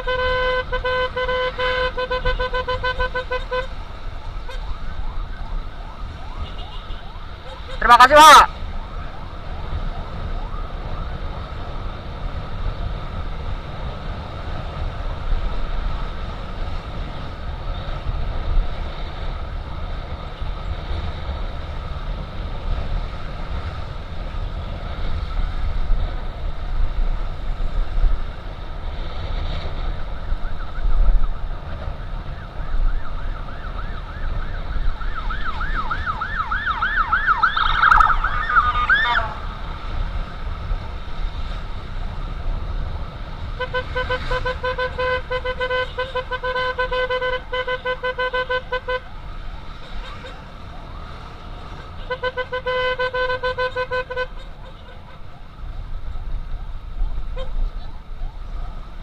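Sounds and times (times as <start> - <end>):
distant siren wailing: 3.0 - 13.3, 29.7 - 41.4, 42.1 - 59.0
fast-warbling siren: 3.8 - 11.7, 30.1 - 39.7.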